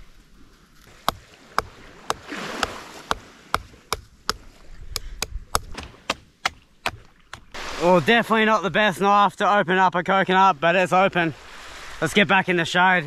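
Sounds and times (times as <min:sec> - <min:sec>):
knife chopping coconut husk: 0:01.0 - 0:07.5.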